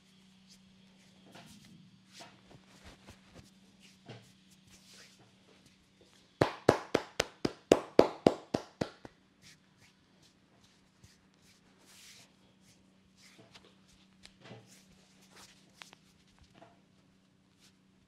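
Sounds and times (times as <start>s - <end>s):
hands rustling cloth: 0.5s - 5.8s, 8.3s - 16.6s
hands slapping skin: 6.4s - 9.1s.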